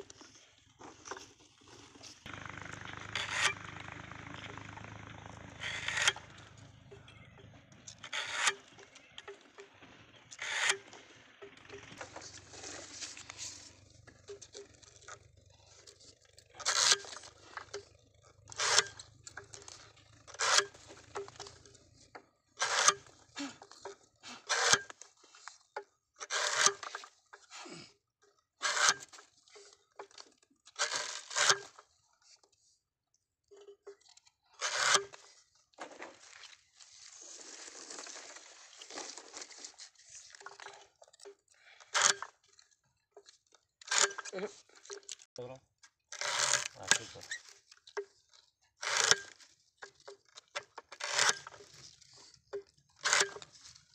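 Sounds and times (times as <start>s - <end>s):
cane cutter crunching cut: 0.8s - 25.1s, 26.2s - 27.1s, 28.6s - 29.3s, 30.8s - 31.8s, 34.6s - 36.4s, 41.8s - 42.4s, 43.8s - 45.2s, 46.1s - 47.5s, 48.8s - 53.9s
smaller crunches: 11.9s - 25.5s, 34.6s - 41.0s.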